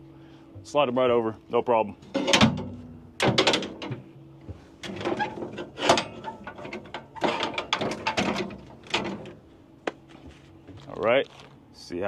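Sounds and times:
metal ratchets clanking: 4.9s - 9.3s.

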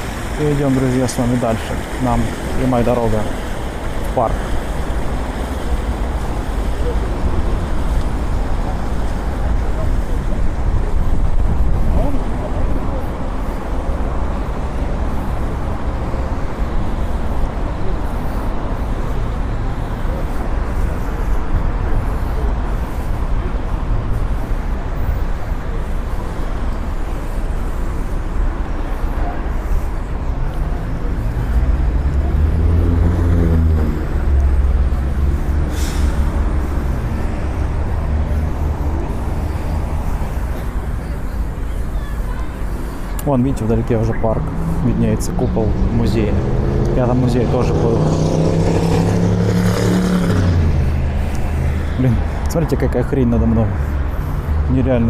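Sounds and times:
city traffic rumble: 0.0s - 55.0s
heavy vehicle engine pulling away: 30.1s - 41.2s, 43.6s - 54.8s
short sharp hiss: 35.7s - 36.4s.

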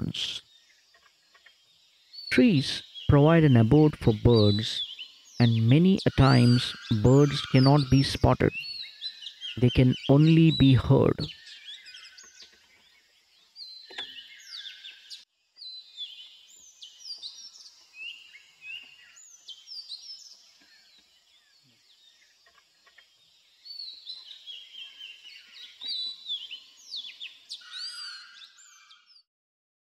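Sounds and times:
birds whistling in chorus: 4.2s - 13.0s, 13.6s - 21.0s, 23.6s - 29.2s.

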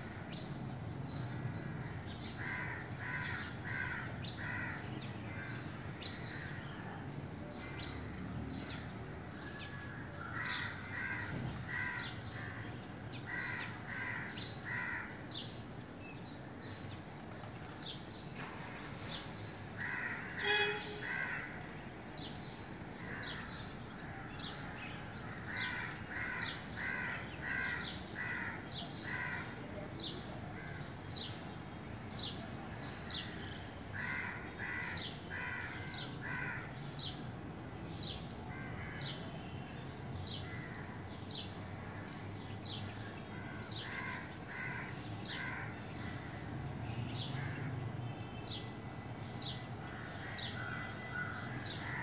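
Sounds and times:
crows cawing: 2.4s - 5.5s, 9.9s - 15.2s, 19.8s - 21.8s, 23.0s - 29.6s, 33.9s - 36.8s, 43.3s - 46.4s, 49.8s - 52.0s.

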